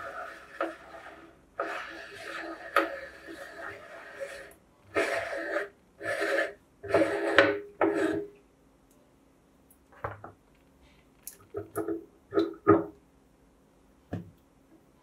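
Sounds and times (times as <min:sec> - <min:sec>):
metal scraping and grating: 0:00.0 - 0:08.3.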